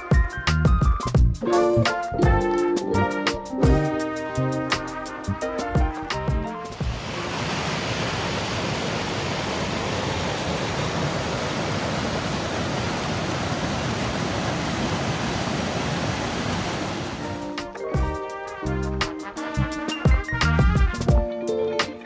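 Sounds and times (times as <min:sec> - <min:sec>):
mountain creek rushing over boulders: 0:06.8 - 0:17.4.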